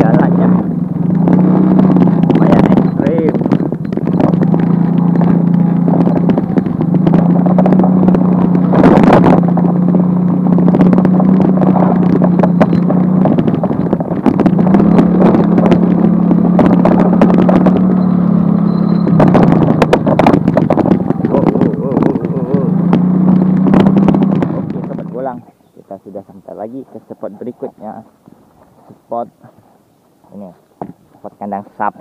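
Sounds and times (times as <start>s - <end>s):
small motorcycle engine running: 0.0s - 25.3s
knocks and rattles over bumps: 0.0s - 25.5s.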